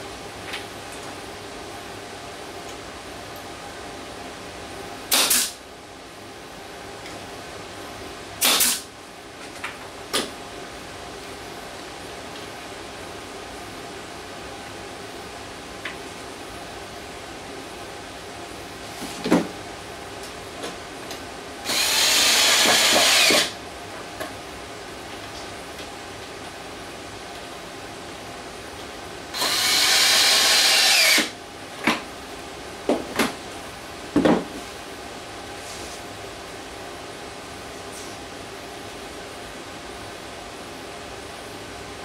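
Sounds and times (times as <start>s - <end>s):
cordless drill running: 21.6s - 23.6s, 29.4s - 31.4s.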